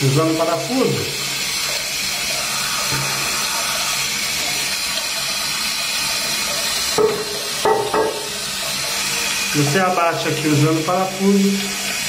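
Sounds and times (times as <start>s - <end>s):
toilet cistern refilling: 0.0s - 12.0s.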